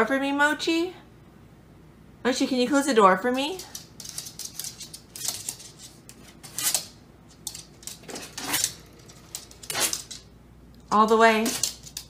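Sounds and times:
dog claws clicking on floor: 3.3s - 12.0s.

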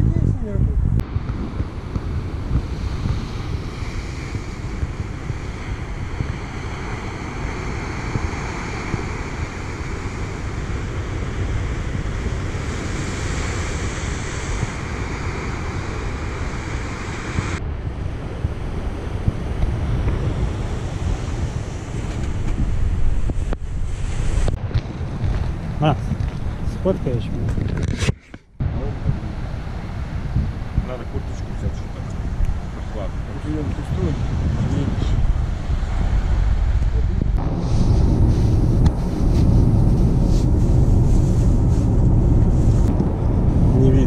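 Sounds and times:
wind buffeting microphone: 0.0s - 44.0s
surf breaking on rocky shore: 1.0s - 26.6s.

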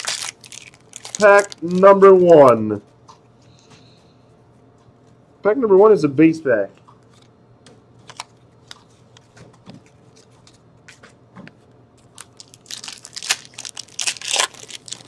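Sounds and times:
foil wrapper crinkling and tearing: 0.0s - 2.5s, 8.0s - 8.4s, 12.0s - 15.0s.

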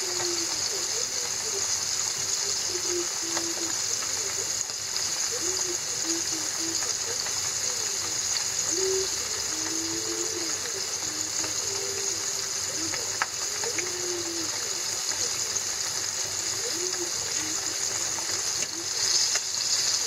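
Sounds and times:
fish deep-frying in oil: 0.0s - 20.0s.

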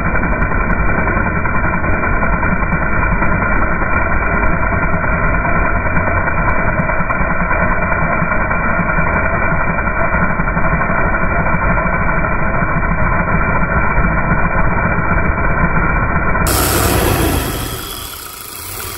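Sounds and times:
muffled engine rumble: 16.5s - 18.9s.

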